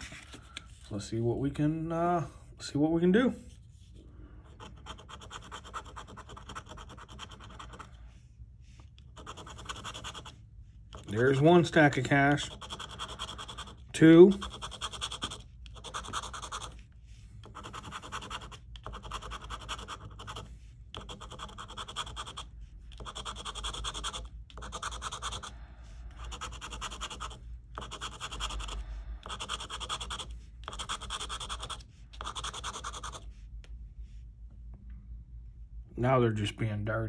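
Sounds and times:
coin scratching lottery ticket: 4.5 - 7.9, 9.1 - 16.8, 17.4 - 25.5, 26.2 - 33.3.

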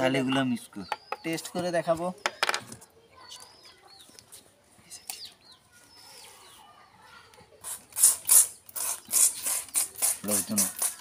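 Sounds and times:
birds chirping: 0.0 - 11.0
water gun squirting spurts: 7.6 - 11.0.

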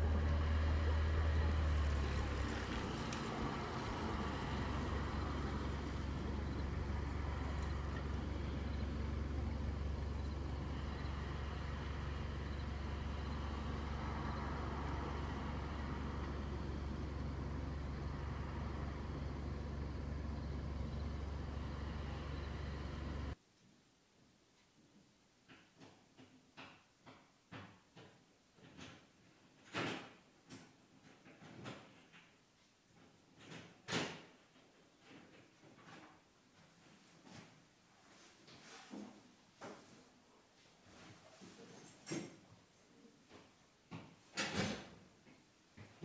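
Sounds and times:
car engine rumble inside cabin: 0.0 - 23.4
road hiss: 0.0 - 23.4.

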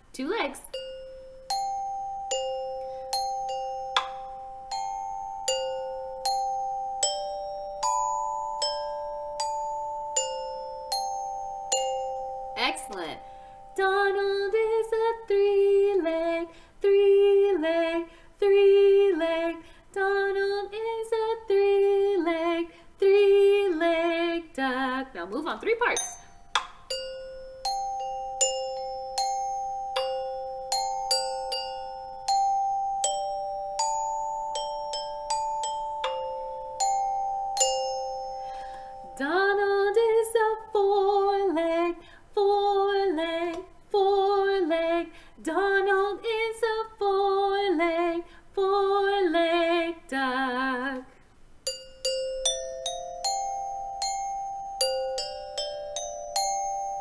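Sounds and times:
glockenspiel struck with mallets: 0.7 - 13.9, 25.8 - 40.4, 51.7 - 57.0
woman singing wordlessly: 12.6 - 26.1, 39.1 - 51.2.

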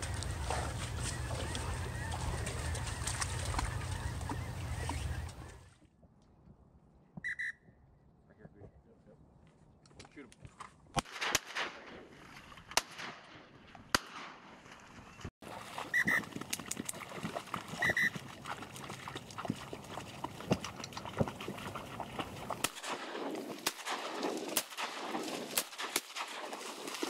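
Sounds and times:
ducks quacking: 0.0 - 5.7
sharp cracks: 10.9 - 15.0, 22.6 - 27.0.

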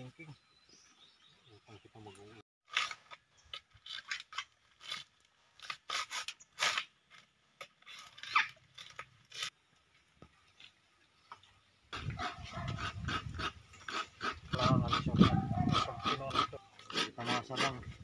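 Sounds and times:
coconut husk tearing and scraping: 2.6 - 9.6, 12.0 - 18.0
coconut meat grating rasp: 12.0 - 18.0.

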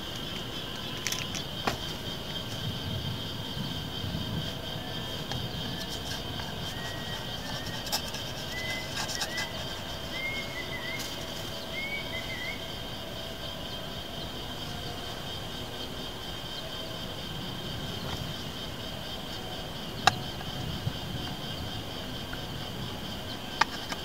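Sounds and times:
insect drone: 0.0 - 24.0
bird whistled calls: 6.7 - 12.8.

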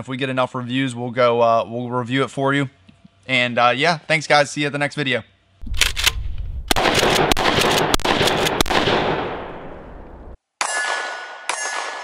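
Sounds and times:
deep rumble: 5.6 - 10.4
rapid gunshots: 6.7 - 9.8.

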